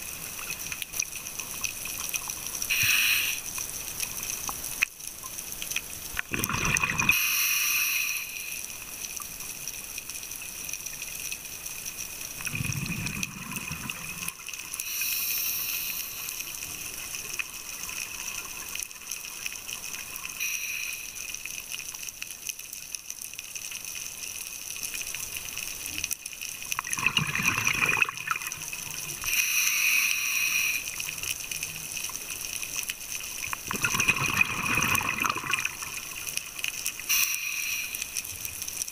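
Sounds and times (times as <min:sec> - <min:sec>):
regulator hissing inhale: 0:02.7 - 0:03.5, 0:07.1 - 0:08.7, 0:14.8 - 0:16.7, 0:20.4 - 0:21.4, 0:29.2 - 0:31.0, 0:37.1 - 0:38.1
gurgling exhaled bubbles: 0:06.2 - 0:07.2, 0:12.4 - 0:14.6, 0:26.8 - 0:29.3, 0:33.6 - 0:36.4.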